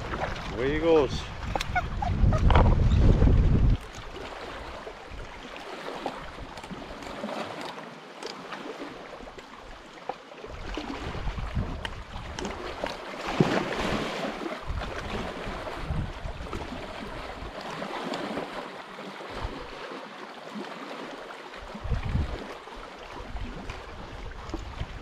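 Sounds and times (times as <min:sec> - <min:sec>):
wind on microphone: 0:00.0 - 0:05.4, 0:10.5 - 0:17.7, 0:21.7 - 0:25.0
lapping lake water: 0:00.0 - 0:25.0.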